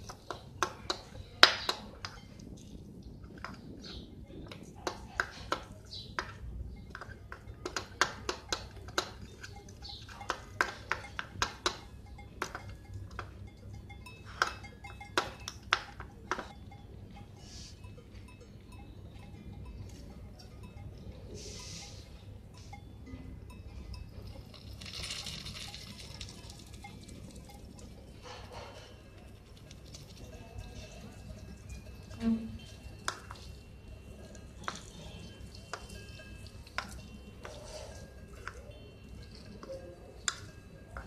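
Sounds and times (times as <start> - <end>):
spoons scraping a steel pan: 17.3 - 17.9, 21.3 - 22.8, 31.8 - 41.0.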